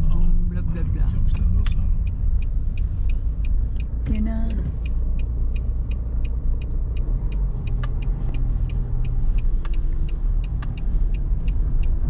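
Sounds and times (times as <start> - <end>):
light ticking: 0.0 - 12.0
road and engine rumble: 0.0 - 12.0.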